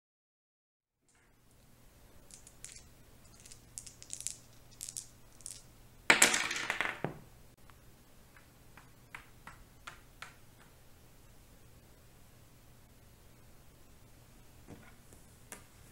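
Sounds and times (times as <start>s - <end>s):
dice rattling in a hand: 2.2s - 7.1s
dice clattering on a board: 2.3s - 7.2s.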